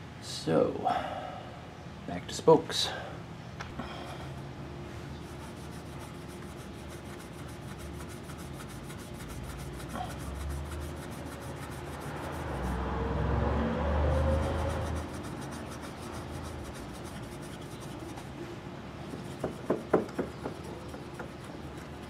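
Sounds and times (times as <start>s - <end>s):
steel wool rasping on metal: 5.4s - 12.8s, 14.0s - 18.2s.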